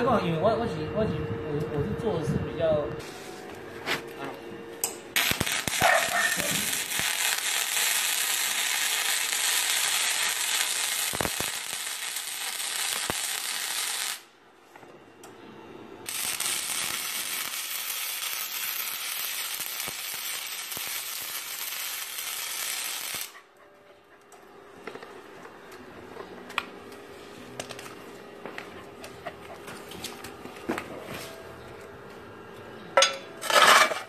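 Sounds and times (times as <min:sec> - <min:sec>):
welding arc crackling: 0:05.1 - 0:14.3, 0:16.0 - 0:23.4.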